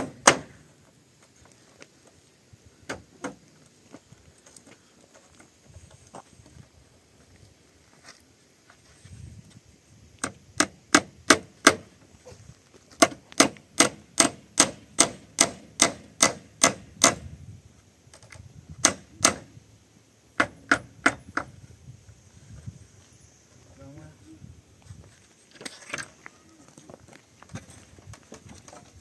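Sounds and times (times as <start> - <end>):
hammer striking wooden beam: 0.0 - 0.6, 10.2 - 11.9, 13.0 - 17.2, 18.8 - 19.5, 20.4 - 21.5.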